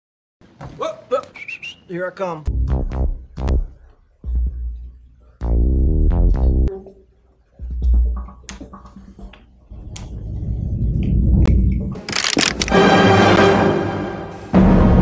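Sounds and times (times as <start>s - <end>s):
electronic synthesizer music: 2.5s - 6.9s.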